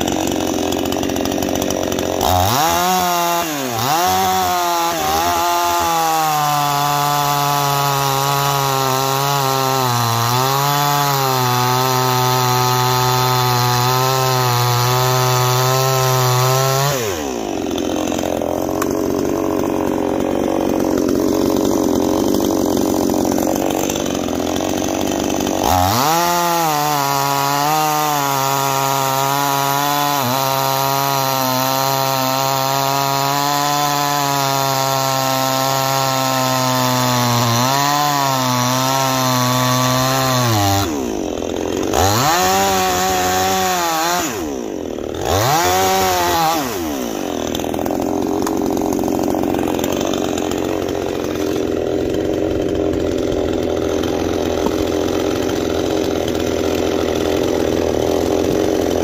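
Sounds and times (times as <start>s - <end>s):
chainsaw cutting a log: 0.0s - 59.0s
chainsaw idling: 0.0s - 59.0s.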